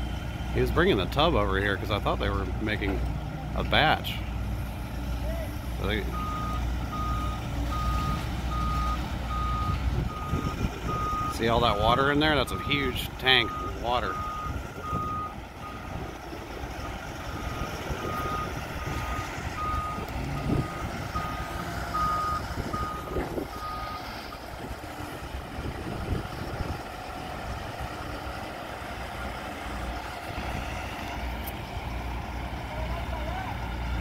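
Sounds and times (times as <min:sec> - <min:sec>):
diesel engine running: 0:00.0 - 0:34.0
reversing alarm beeping: 0:06.0 - 0:16.1, 0:17.3 - 0:24.4.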